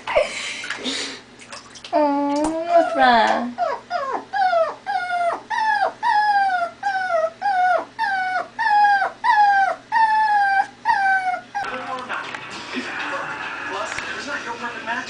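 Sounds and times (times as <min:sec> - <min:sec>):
puppy whining: 0:01.9 - 0:11.9.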